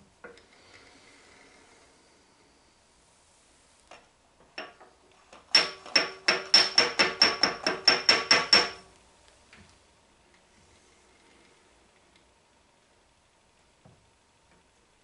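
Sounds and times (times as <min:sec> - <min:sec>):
small hammer tapping steel: 0:04.6 - 0:08.9.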